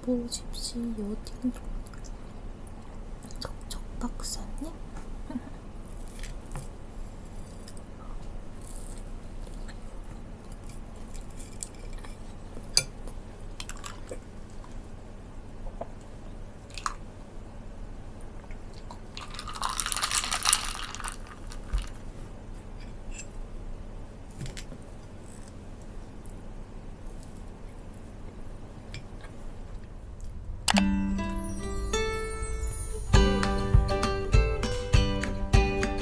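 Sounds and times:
crunchy rustling: 19.1s - 22.7s.

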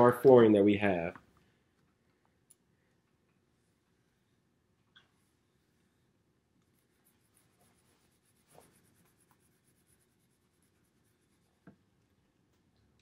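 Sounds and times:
click: 1.2s - 3.4s.

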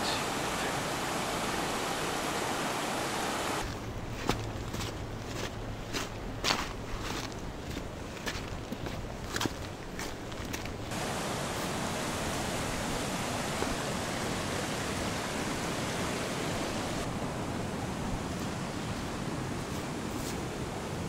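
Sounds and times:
water rushing: 0.0s - 3.8s, 10.9s - 21.0s
footsteps: 3.6s - 10.8s.

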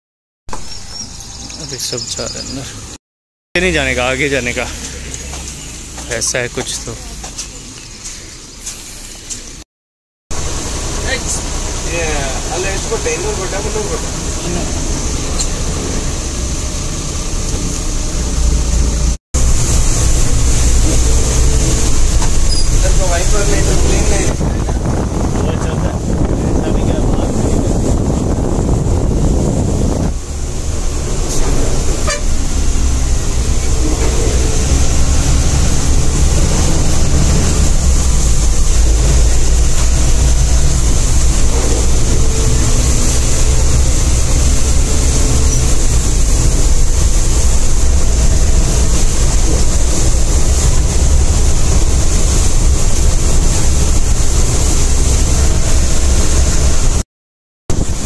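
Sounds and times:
bus engine and road rumble: 0.5s - 3.0s, 3.6s - 9.6s, 10.3s - 57.0s, 57.7s - 58.0s
constant hiss: 3.6s - 9.6s, 10.4s - 27.6s.

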